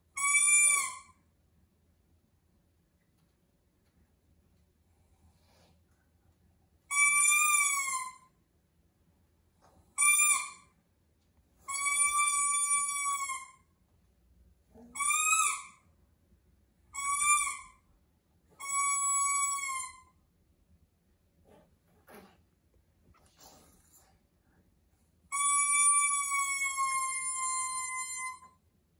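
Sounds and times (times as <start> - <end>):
toy trumpet toots: 25.3 - 28.5.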